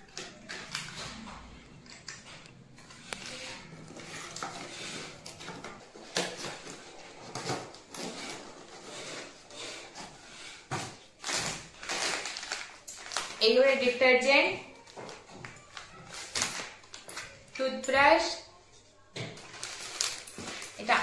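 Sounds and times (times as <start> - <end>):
cardboard rustling and scraping: 2.3 - 13.2, 19.4 - 21.0.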